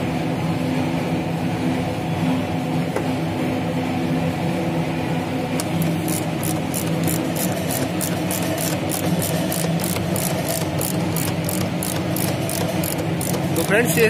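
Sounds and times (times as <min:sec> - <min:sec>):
steady low hum: 0:00.0 - 0:14.0
hand ratchet clicking: 0:05.6 - 0:14.0.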